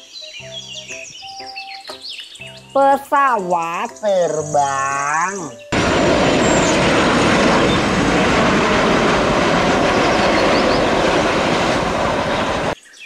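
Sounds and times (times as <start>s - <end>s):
jet engines roaring at takeoff: 5.7s - 12.8s.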